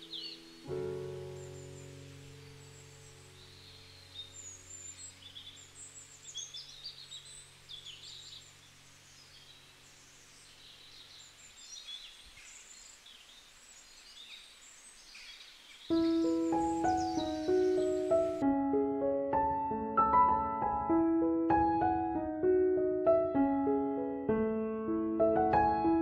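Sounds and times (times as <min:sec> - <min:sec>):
birds chirping and twittering: 0:00.0 - 0:18.4.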